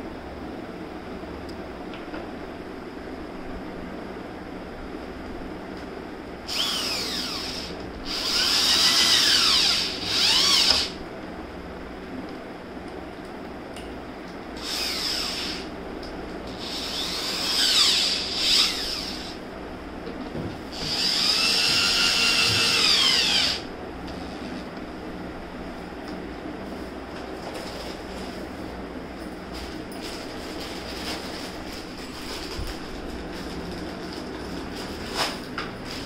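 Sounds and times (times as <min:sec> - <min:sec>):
cordless drill driving screws: 0:06.5 - 0:11.0, 0:14.6 - 0:15.7, 0:16.6 - 0:19.4, 0:20.8 - 0:23.7.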